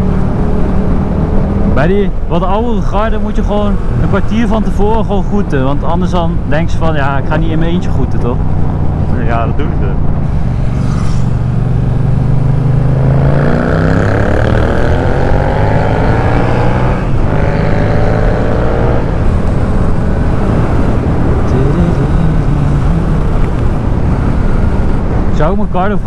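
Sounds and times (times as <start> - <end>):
motorcycle engine accelerating: 8.3 - 25.4.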